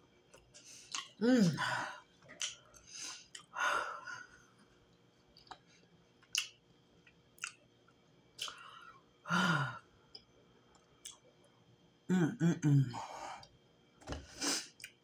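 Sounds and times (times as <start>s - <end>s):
wet mouth clicks chewing: 0.3s - 1.2s
woman sighing: 1.2s - 2.0s.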